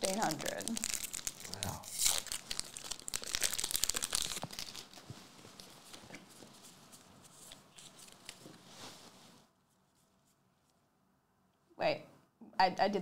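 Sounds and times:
foil wrapper crinkling: 0.0 - 8.6.

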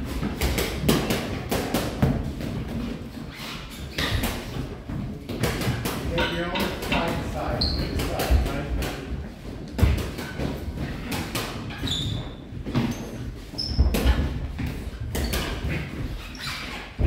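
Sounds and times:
shoes squeaking on canvas: 2.9 - 4.8, 7.3 - 8.5, 10.2 - 17.0.

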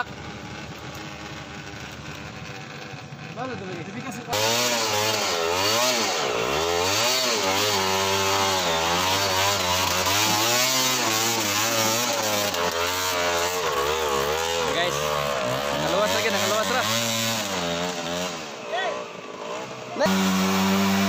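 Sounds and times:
dirt bike engine revving: 0.0 - 21.0.

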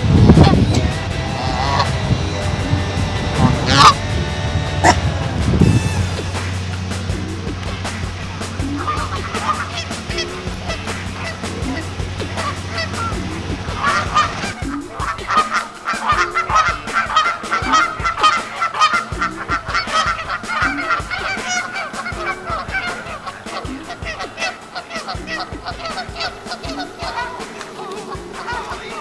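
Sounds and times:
geese honking: 0.0 - 29.0.

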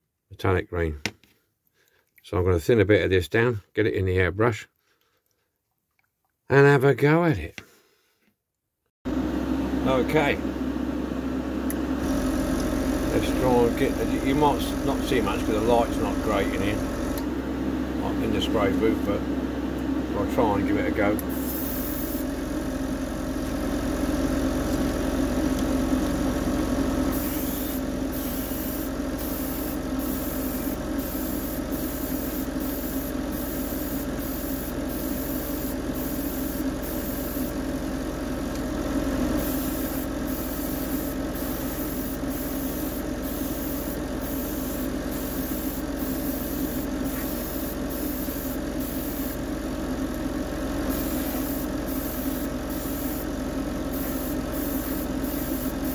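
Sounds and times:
extraction fan humming: 9.1 - 55.9
airbrush hissing: 12.0 - 17.2, 21.3 - 22.6, 27.1 - 37.6, 39.4 - 49.5, 50.9 - 53.3, 53.9 - 55.9.

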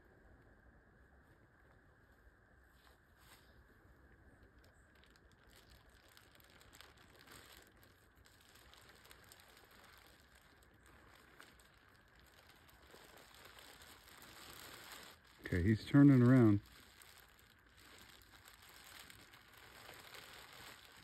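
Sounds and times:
plastic bag rustling: 4.6 - 21.0.

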